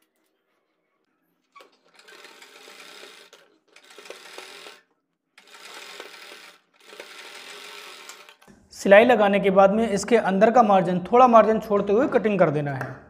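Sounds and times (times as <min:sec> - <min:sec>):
sewing machine stitching: 0:01.6 - 0:04.8, 0:05.4 - 0:08.4.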